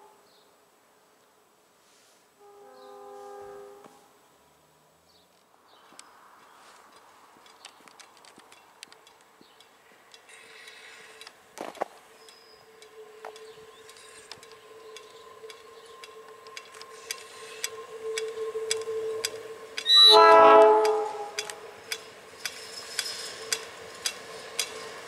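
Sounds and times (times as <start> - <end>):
train approaching steady tone: 1.8 - 5.0, 6.0 - 25.0
sharp clicks: 6.9 - 19.9, 20.8 - 24.8.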